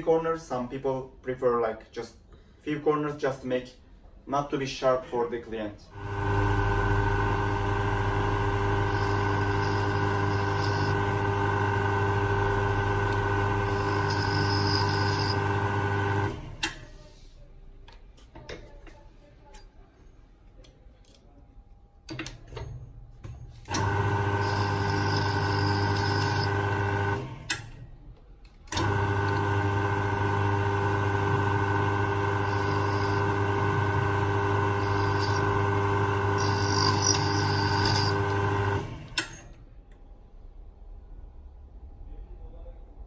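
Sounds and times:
lathe motor humming: 6.0s - 16.6s, 23.7s - 27.4s, 28.8s - 39.2s.

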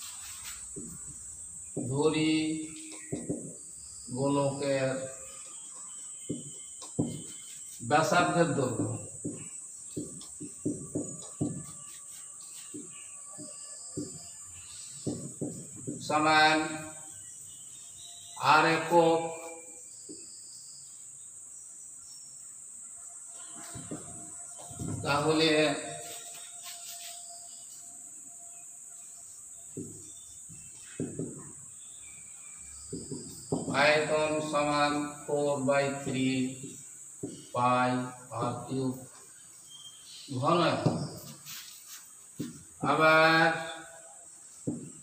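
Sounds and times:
steady high-pitched hiss: 0.0s - 45.0s
marker squeaking on whiteboard: 4.9s - 16.9s, 23.4s - 28.1s.

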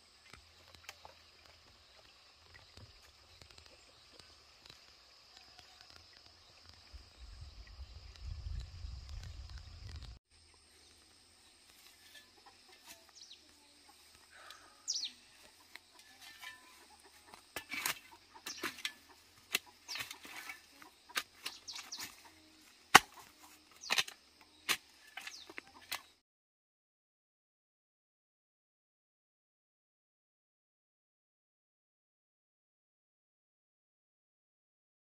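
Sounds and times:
spade chopping into dry soil: 16.0s - 22.3s, 22.9s - 26.1s.

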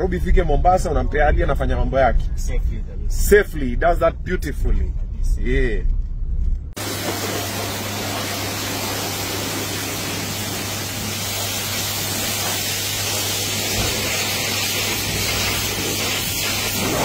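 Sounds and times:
pressure washer water jet hissing: 6.8s - 17.0s.

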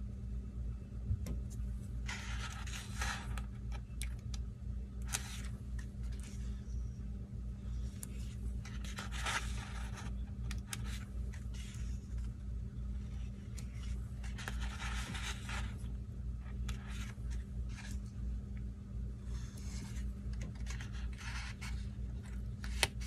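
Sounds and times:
steady low hum: 0.0s - 23.0s
paper rustling: 2.0s - 3.5s, 5.1s - 6.6s, 8.0s - 12.3s, 13.0s - 18.1s, 19.3s - 23.0s.

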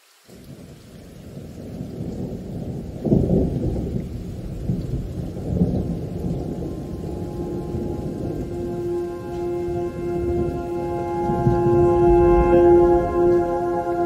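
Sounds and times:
deep rumbling: 5.0s - 14.0s.

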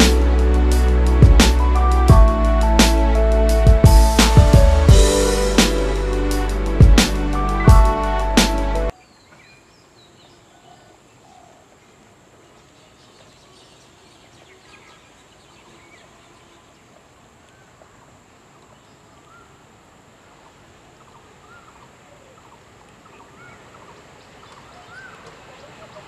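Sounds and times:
steady background hiss: 0.0s - 26.0s
birds chirping: 20.5s - 26.0s.

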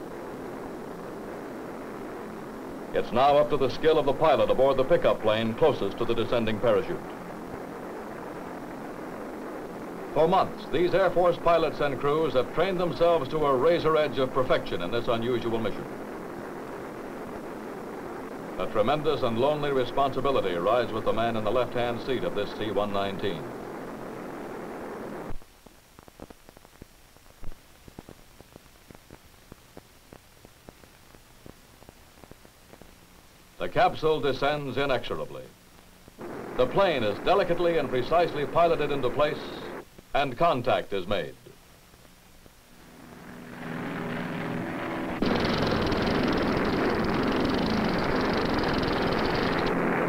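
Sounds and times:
propeller aircraft engines droning: 0.0s - 25.2s, 36.2s - 39.8s, 42.5s - 50.0s
rushing noise in plane cockpit: 0.0s - 25.4s, 36.2s - 39.8s, 42.5s - 50.0s
film soundtrack crackle and pops: 0.0s - 50.0s.

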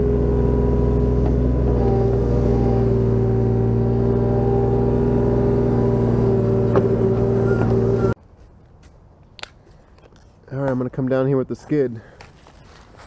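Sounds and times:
mini excavator running: 0.0s - 8.2s.

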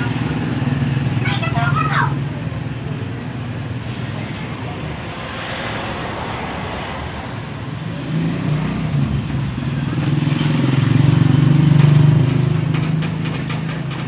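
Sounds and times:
vehicle engine passing: 0.0s - 13.6s.

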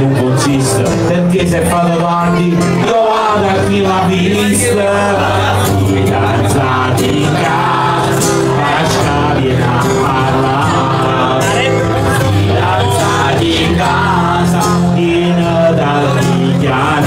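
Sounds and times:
man singing: 0.0s - 17.0s
strummed acoustic guitar: 0.0s - 17.0s.

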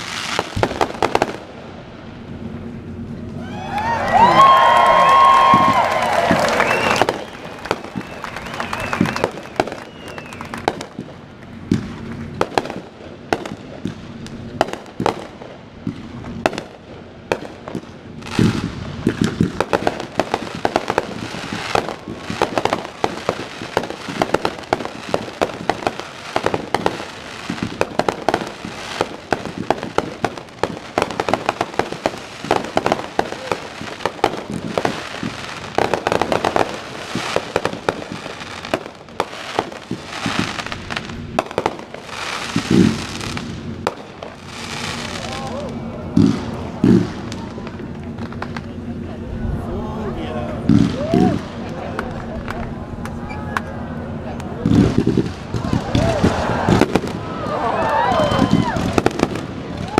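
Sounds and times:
heavy firework booms: 0.0s - 1.9s, 4.5s - 48.7s, 50.4s - 51.8s, 54.6s - 59.9s
fireworks bangs and crackles: 0.0s - 59.9s.

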